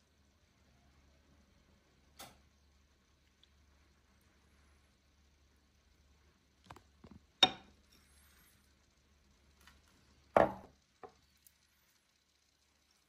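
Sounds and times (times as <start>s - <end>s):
glass dishes clinking on table: 7.4s - 7.7s.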